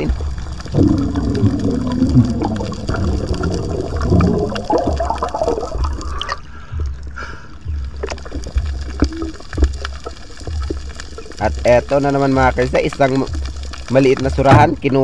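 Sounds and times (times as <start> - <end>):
underwater water bubbling: 0.0 - 15.0.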